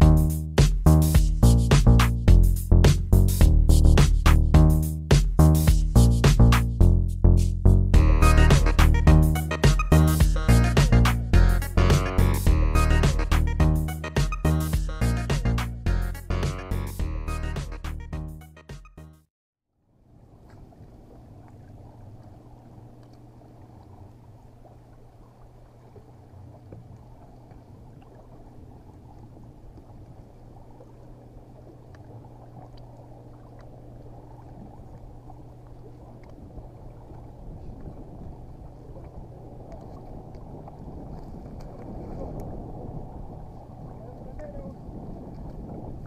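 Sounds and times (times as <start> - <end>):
steady low hum: 0.0 - 17.8, 20.0 - 46.0
water lapping against boat hull: 20.1 - 46.0
faint ticks: 23.0 - 23.3.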